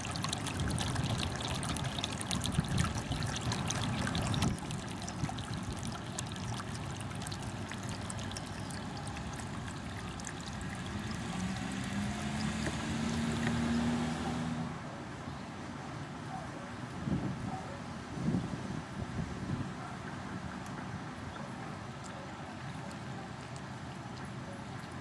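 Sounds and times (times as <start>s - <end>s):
low steady hum: 0.0s - 13.3s
water trickling: 0.0s - 14.5s, 21.9s - 25.0s.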